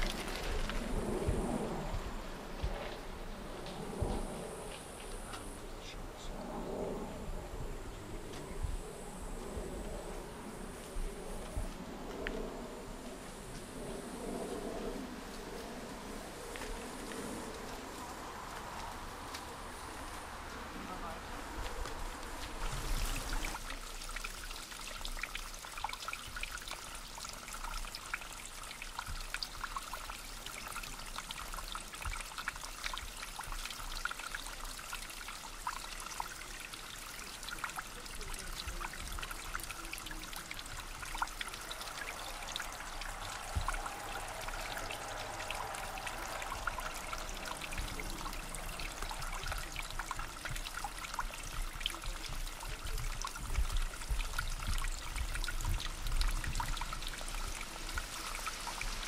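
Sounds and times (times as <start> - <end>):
brook trickling and babbling: 0.0 - 0.9, 16.3 - 59.0
water drips: 21.6 - 59.0.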